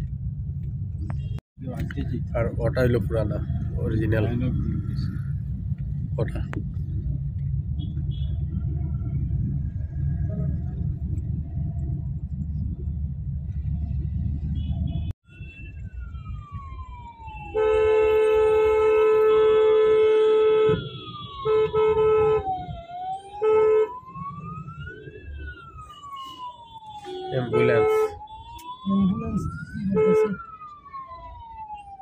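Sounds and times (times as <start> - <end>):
street traffic rumble: 0.0 - 32.0
emergency siren wailing: 8.1 - 12.2, 14.6 - 32.0
vehicle horn honking: 17.6 - 22.4, 27.0 - 28.2.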